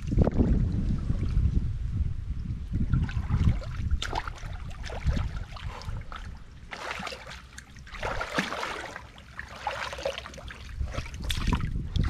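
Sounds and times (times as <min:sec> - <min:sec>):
water sloshing around wading legs: 0:02.8 - 0:12.0.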